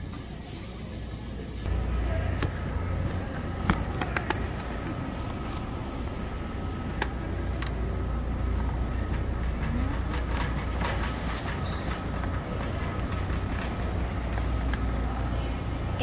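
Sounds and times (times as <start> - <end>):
shopping cart wheels rumbling: 0.0 - 16.0
shopping cart clicks and rattles: 6.6 - 15.3.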